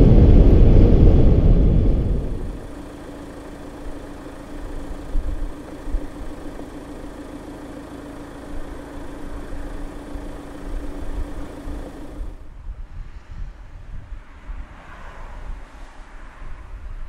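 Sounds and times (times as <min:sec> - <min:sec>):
wind rumbling on microphone: 0:00.0 - 0:07.2, 0:08.6 - 0:17.0
diesel engine idling: 0:00.0 - 0:12.5.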